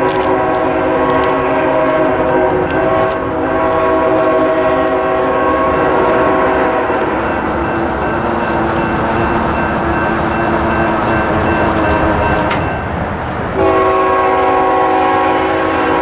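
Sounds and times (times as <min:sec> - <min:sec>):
train air horn chord: 0:00.0 - 0:12.6, 0:13.6 - 0:16.0
hiss: 0:05.6 - 0:09.8.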